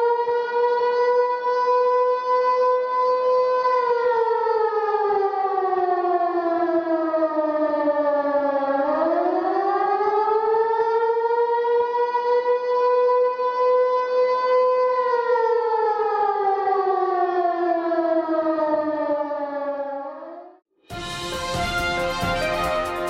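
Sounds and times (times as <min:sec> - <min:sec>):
siren wailing: 0:00.0 - 0:23.0.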